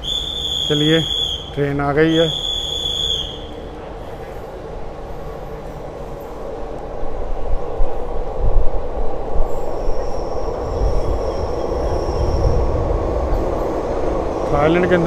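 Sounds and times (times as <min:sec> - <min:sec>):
high-pitched brake squeal: 0:00.0 - 0:04.3
train rumbling: 0:00.0 - 0:15.0.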